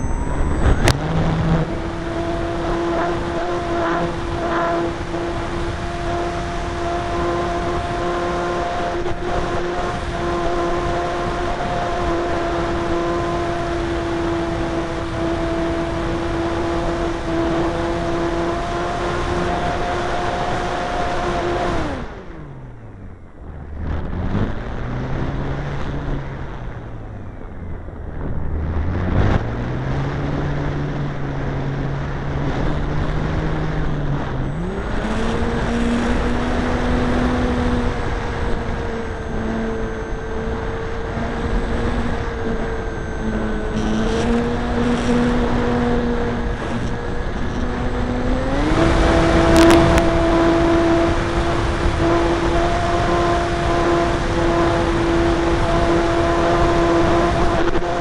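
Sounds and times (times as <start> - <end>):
model airplane motor and propeller: 33.0 - 58.0.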